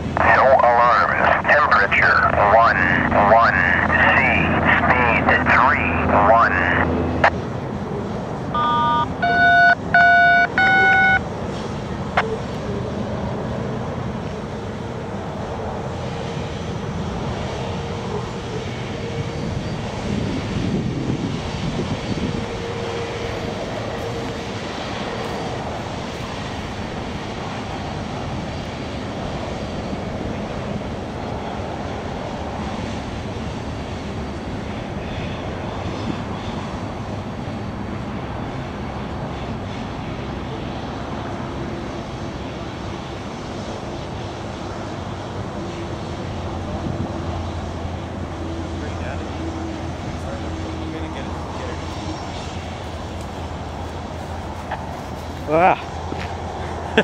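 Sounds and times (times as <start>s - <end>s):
short electronic beeps: 8.6s - 11.2s
freight train cars rumbling: 11.2s - 57.0s.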